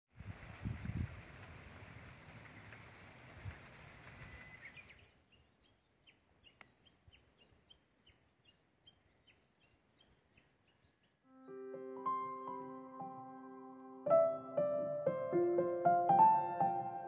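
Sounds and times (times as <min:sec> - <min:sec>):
rushing outdoor noise: 0:00.1 - 0:04.9
small songbird chirping: 0:00.2 - 0:02.8, 0:04.0 - 0:11.3.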